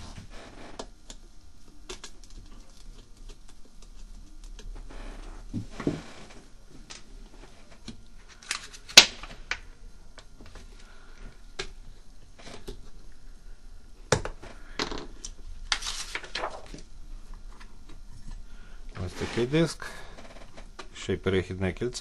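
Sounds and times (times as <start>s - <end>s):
plastic rustling: 15.2s - 16.9s.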